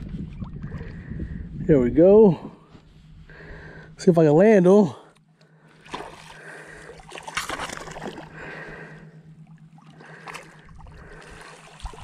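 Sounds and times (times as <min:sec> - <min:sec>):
water splashing and sloshing: 0:05.1 - 0:12.0
fish thrashing at water surface: 0:05.8 - 0:08.7, 0:09.8 - 0:12.0.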